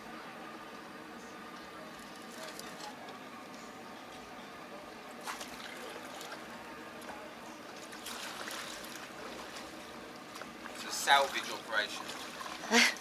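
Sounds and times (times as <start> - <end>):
water splashing and trickling: 5.2 - 13.0.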